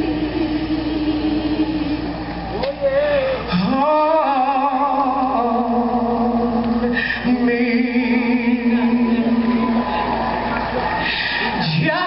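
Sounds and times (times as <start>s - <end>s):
person singing slow worship song: 0.0s - 12.0s.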